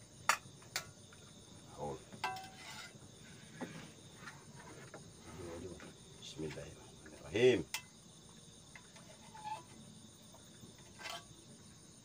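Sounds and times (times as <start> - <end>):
crickets and insects buzzing: 0.0 - 12.0.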